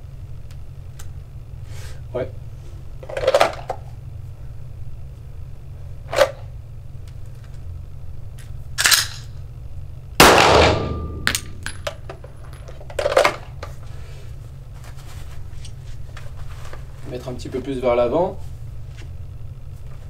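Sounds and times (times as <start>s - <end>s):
pistol shot echoing: 10.2s - 11.5s.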